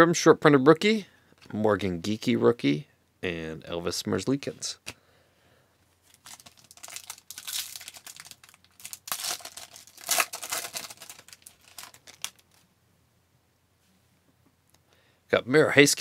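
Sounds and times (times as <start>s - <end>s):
foil pack tearing and crinkling: 6.1s - 12.6s.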